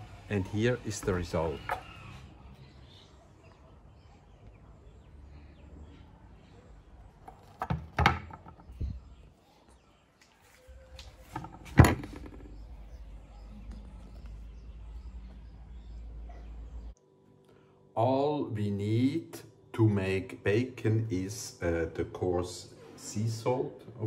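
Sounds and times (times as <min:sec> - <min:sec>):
wood knocking on table: 0:07.6 - 0:08.8.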